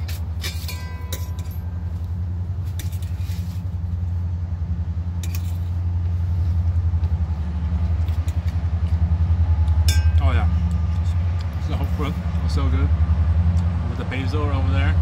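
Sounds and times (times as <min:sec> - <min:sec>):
low rumble: 0:00.0 - 0:15.0
metal forks clinking on plate: 0:00.4 - 0:01.7.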